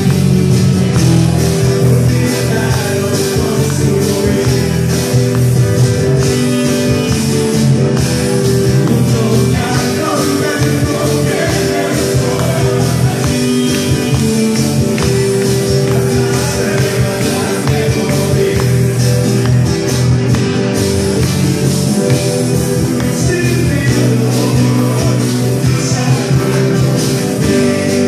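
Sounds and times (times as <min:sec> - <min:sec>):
electric guitar: 0:00.0 - 0:28.0
strummed acoustic guitars: 0:00.0 - 0:28.0
man singing: 0:01.2 - 0:05.6, 0:08.7 - 0:19.5, 0:21.2 - 0:28.0.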